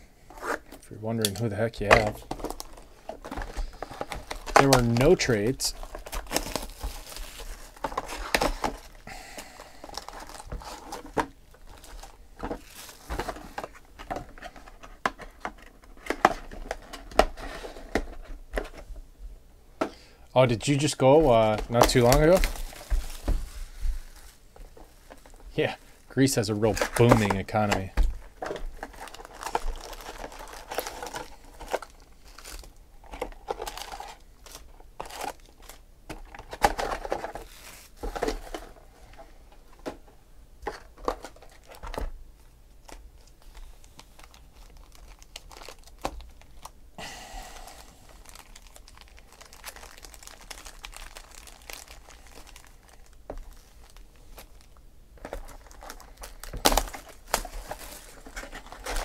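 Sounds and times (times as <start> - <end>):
foil and cardboard crinkling: 1.3 - 18.8, 20.4 - 39.9, 42.8 - 46.7, 47.4 - 59.0.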